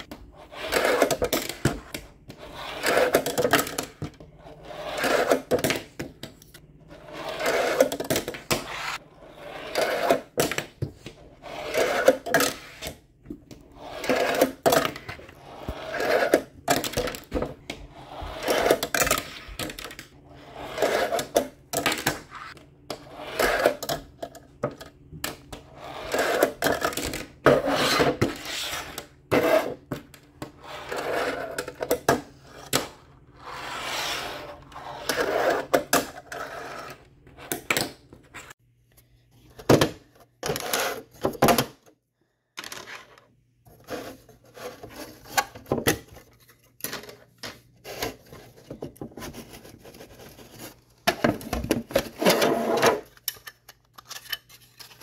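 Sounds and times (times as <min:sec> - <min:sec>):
fingerboard rolling and scraping: 0:00.0 - 0:38.6, 0:51.8 - 0:53.0.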